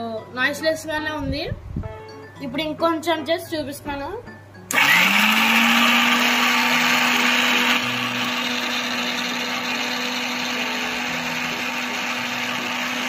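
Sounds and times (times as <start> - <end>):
mixer grinder whirring: 4.7 - 13.0.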